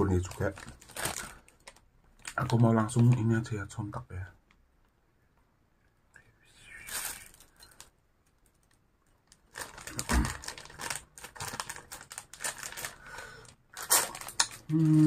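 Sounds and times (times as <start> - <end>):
plastic bag crinkling: 0.0 - 3.4, 6.8 - 15.0.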